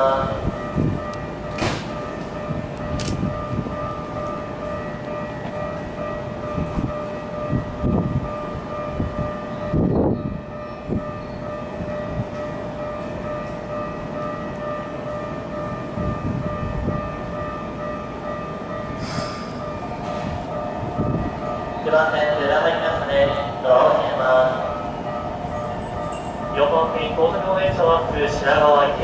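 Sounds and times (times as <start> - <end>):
short hiss: 19.0 - 19.6.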